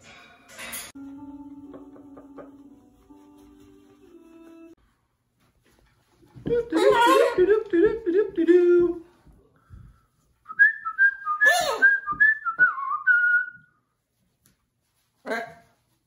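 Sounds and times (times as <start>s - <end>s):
whistled tune: 10.5s - 13.8s.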